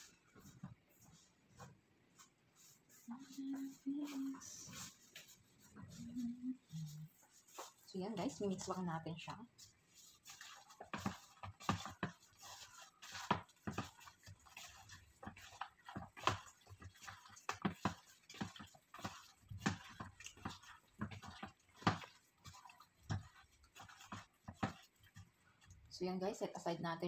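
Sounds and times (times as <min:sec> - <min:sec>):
hand squishing raw chicken: 0:06.9 - 0:25.9.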